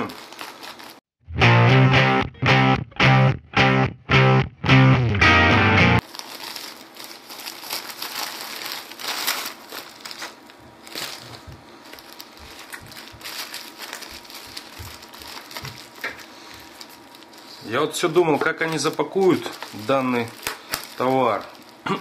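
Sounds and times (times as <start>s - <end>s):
bubble wrap crinkling and crackling: 0.0s - 1.1s, 6.0s - 22.0s
music with distorted electric guitar: 1.2s - 6.0s.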